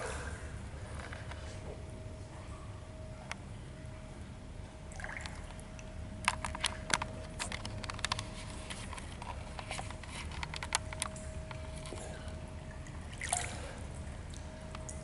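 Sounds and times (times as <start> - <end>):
steady low hum: 0.0 - 15.0
pool water sloshing and dripping: 4.8 - 15.0.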